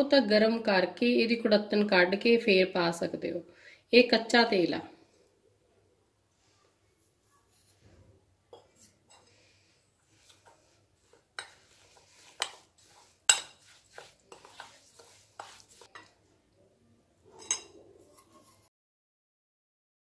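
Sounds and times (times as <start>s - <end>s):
spoon stirring and scraping: 6.4s - 16.4s, 17.2s - 18.7s
spoon clinking against bowl: 13.3s - 16.2s, 17.4s - 17.8s.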